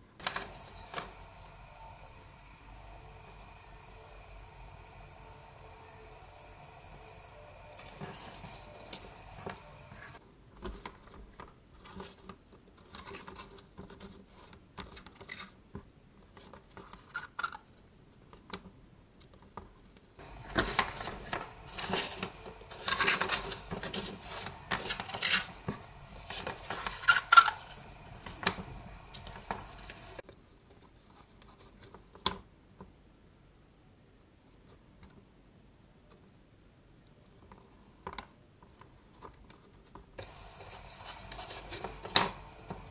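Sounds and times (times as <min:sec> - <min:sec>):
cardboard strips rubbing and clicking: 0:39.4 - 0:42.9.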